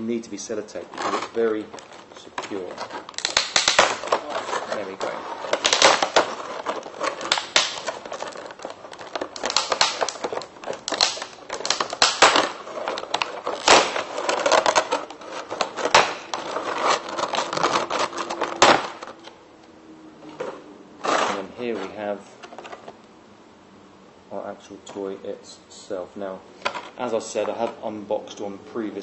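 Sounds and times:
plastic tray crinkling and clicking: 0.8s - 19.4s.

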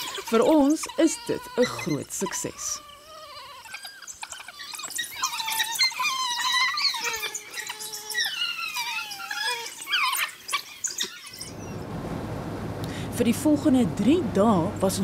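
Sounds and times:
wild dogs twittering: 0.0s - 11.8s.

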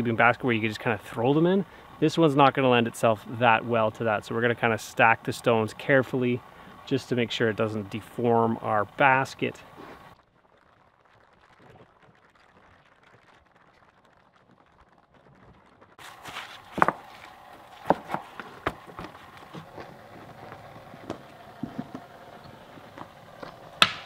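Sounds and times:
stones clacking together: 16.1s - 24.0s.

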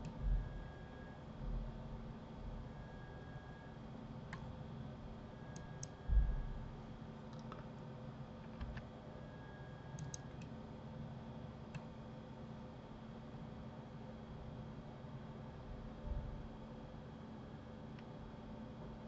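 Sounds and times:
faint steady hum: 0.0s - 19.0s
dull low thump: 6.1s - 6.6s
mouse and keyboard clicks: 10.0s - 10.5s.

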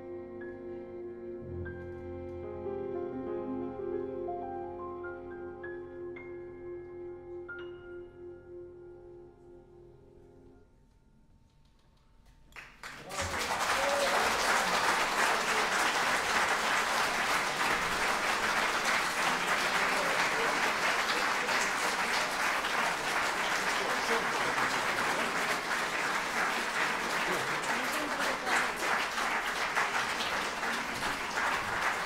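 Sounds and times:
audience applauding: 12.5s - 32.0s.

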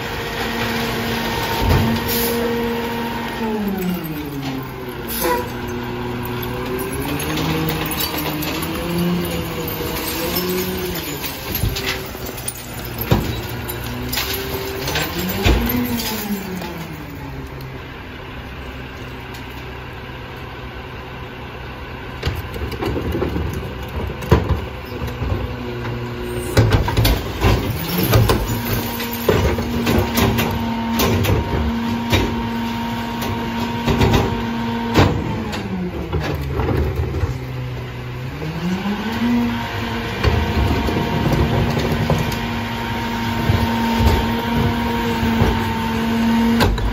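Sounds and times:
garbage truck diesel engine revving: 0.0s - 18.6s, 25.1s - 46.9s
plastic carts knocking and banging: 6.7s - 16.9s, 26.4s - 32.6s, 40.2s - 42.6s.

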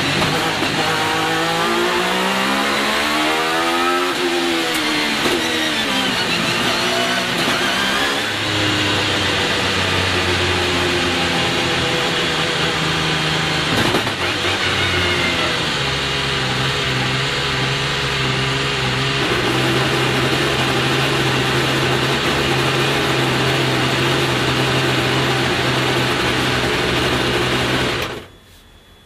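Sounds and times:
race car engine idling: 11.4s - 28.6s.

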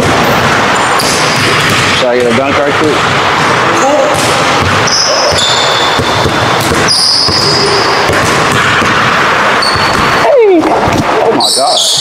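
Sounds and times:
basketballs bouncing on wood floor: 0.0s - 11.1s
sneaker squeaks: 4.8s - 8.9s, 9.6s - 10.3s, 11.4s - 12.0s.

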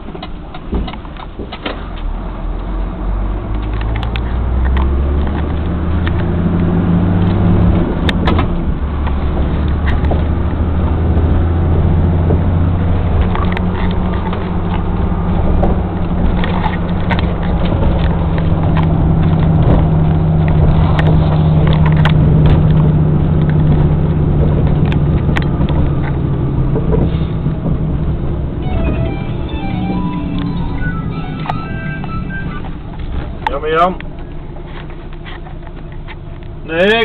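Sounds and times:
truck diesel engine droning: 2.0s - 36.0s.

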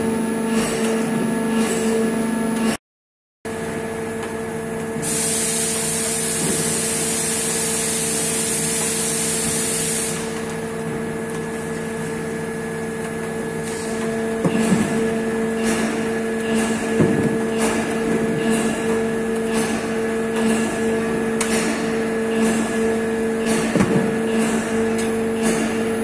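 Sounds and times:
machine hum with fixed tones: 0.0s - 2.8s, 3.5s - 26.0s.

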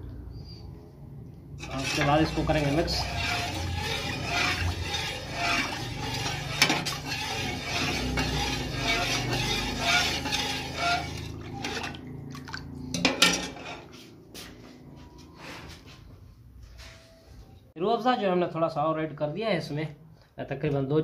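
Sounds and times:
liquid swishing: 1.6s - 14.0s.

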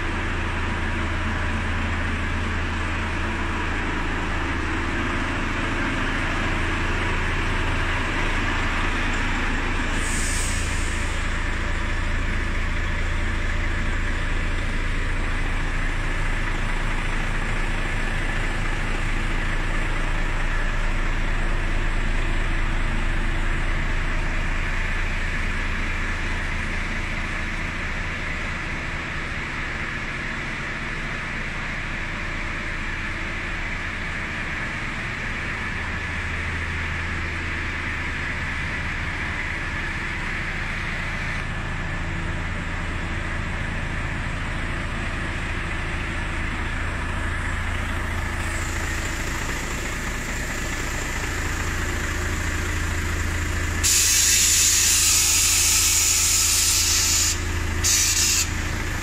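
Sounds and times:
diesel engine idling: 0.0s - 59.0s
short hiss: 53.8s - 58.6s.

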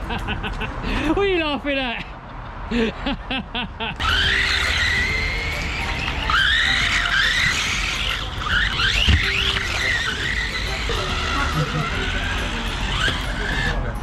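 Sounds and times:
electric motor whining: 4.0s - 14.0s
tyres on ground: 4.0s - 14.0s.

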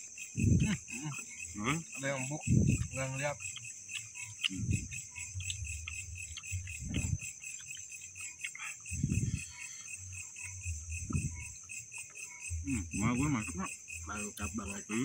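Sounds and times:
crickets chirring: 0.0s - 15.0s
dull low thuds: 0.4s - 0.9s, 2.4s - 3.0s, 4.5s - 7.4s, 8.9s - 9.4s, 10.4s - 11.6s.

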